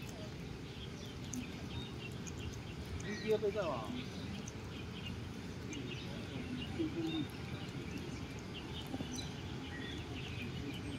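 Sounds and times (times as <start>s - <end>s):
faint bird chirps: 0.0s - 10.9s
low background noise: 0.0s - 10.9s.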